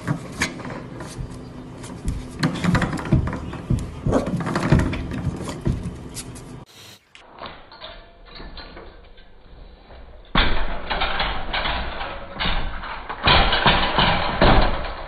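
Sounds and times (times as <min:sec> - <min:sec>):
metal gate crashing down: 0:02.2 - 0:06.0, 0:10.2 - 0:15.0.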